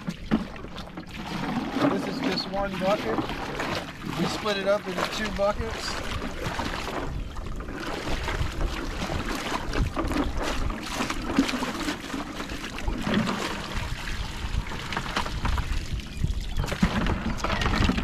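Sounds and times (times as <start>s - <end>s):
water sloshing in bucket: 0.0s - 18.0s
wind rumble on microphone: 5.1s - 18.0s.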